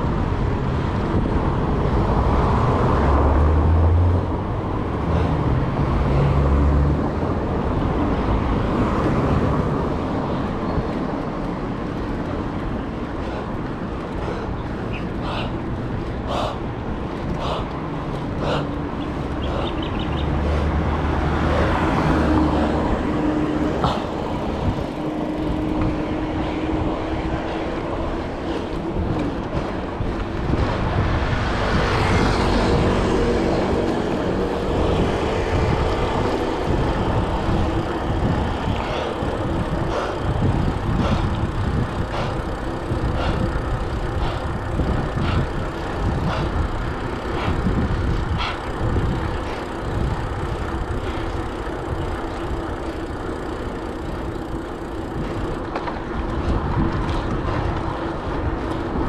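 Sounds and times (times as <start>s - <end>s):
road traffic noise: 0.0s - 59.0s.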